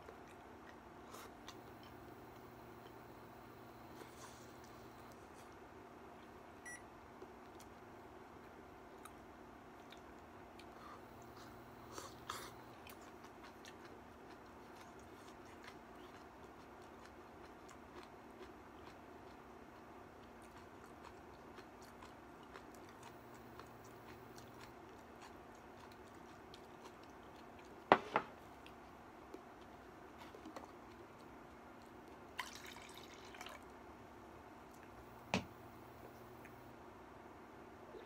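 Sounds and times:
low steady hum: 0.0s - 38.0s
person eating: 9.8s - 33.6s.

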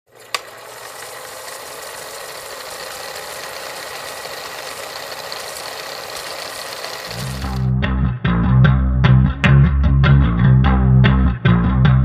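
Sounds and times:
film projector clattering: 0.1s - 7.7s.

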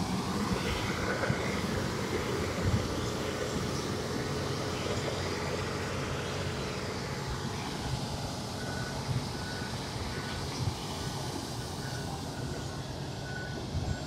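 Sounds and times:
milling machine rumbling: 0.0s - 14.0s
reversing alarm beeping: 11.2s - 14.0s.

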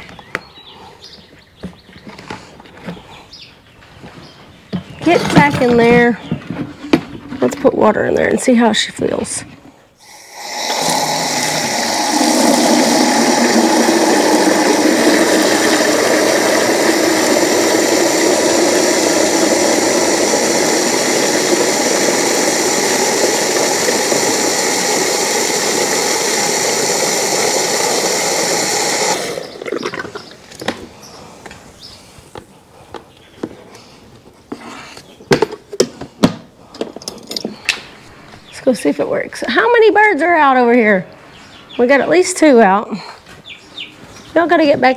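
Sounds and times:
bucket knocks: 4.8s - 7.6s
hose filling bucket with water: 10.0s - 30.3s.

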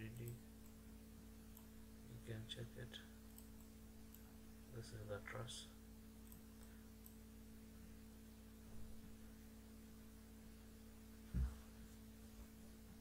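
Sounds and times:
low electrical hum: 0.0s - 13.0s
short low thump: 11.3s - 11.6s.

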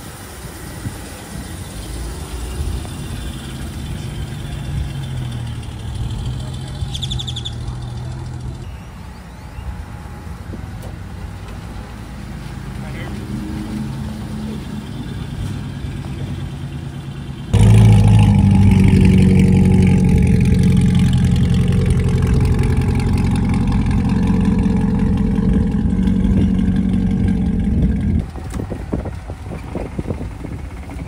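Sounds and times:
car engine idling: 16.5s - 31.0s.

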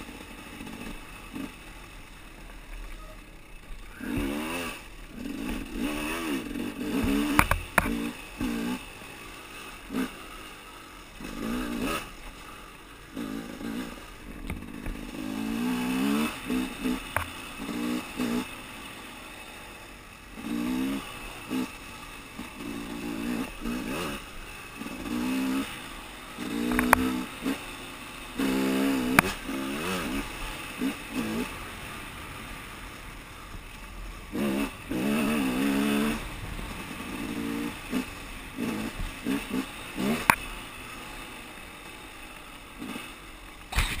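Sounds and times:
dirt bike engine revving: 0.0s - 44.0s
bike striking rocks: 43.7s - 44.0s.

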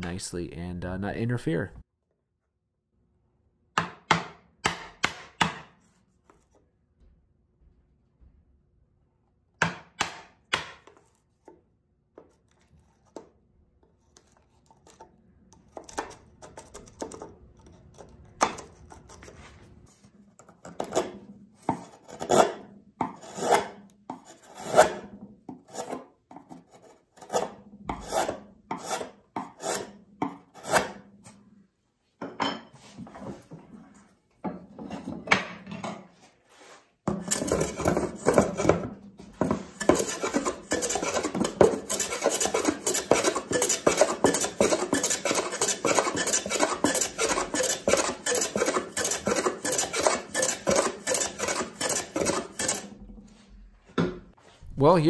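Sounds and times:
chisel cutting wood: 20.6s - 31.1s, 37.1s - 39.0s, 39.6s - 53.0s
hand plane shaving wood: 20.8s - 31.0s, 36.5s - 38.9s, 39.5s - 53.0s
chisel paring strokes: 36.5s - 53.0s.

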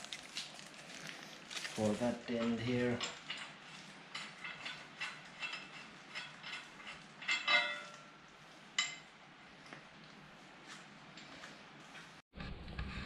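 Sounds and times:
ringing metal clank: 4.2s - 8.2s.

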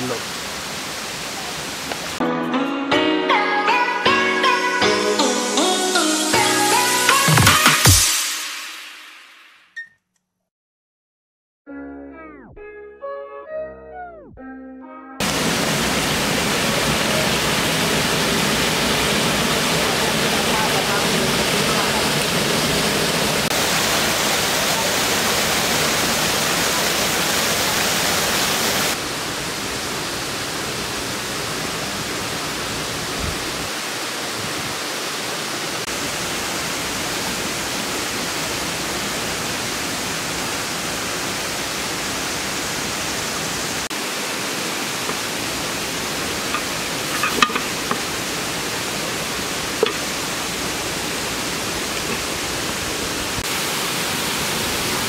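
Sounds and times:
river water rushing: 15.2s - 55.0s.

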